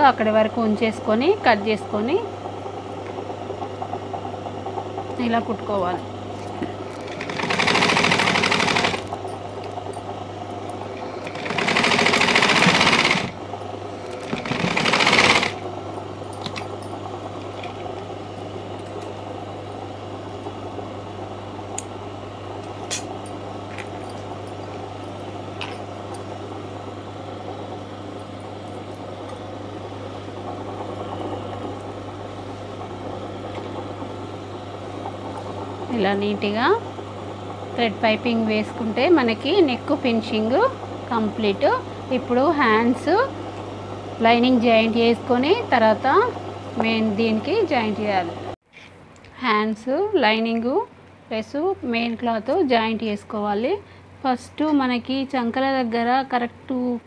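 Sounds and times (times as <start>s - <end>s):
sewing machine stitching: 6.9s - 9.2s, 11.0s - 13.4s, 14.1s - 15.6s.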